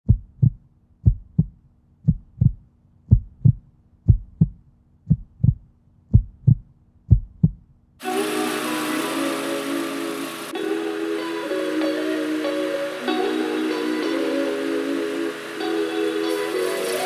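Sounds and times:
heartbeat thumps: 0.0s - 7.7s
music: 8.0s - 17.0s.

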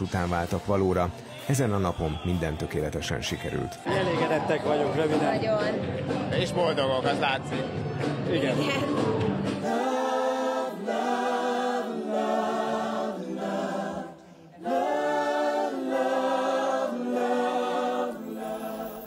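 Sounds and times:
choir singing held chords: 9.3s - 19.0s.

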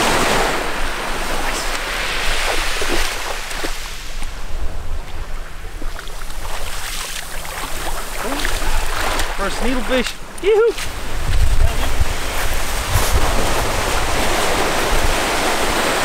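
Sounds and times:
small waves on pebbly shore: 0.0s - 4.2s, 12.2s - 16.0s
wind rumbling on microphone: 0.0s - 16.0s.

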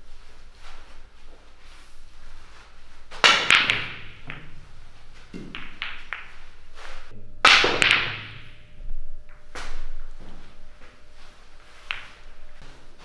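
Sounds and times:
billiard balls clacking: 3.0s - 8.7s, 9.3s - 13.0s
cue striking billiard ball: 3.1s - 8.6s, 11.7s - 12.7s.

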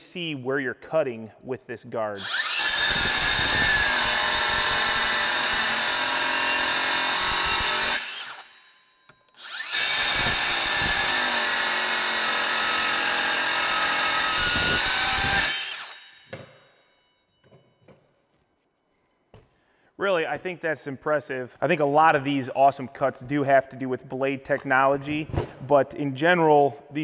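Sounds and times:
circular saw cutting steel: 2.2s - 16.4s.

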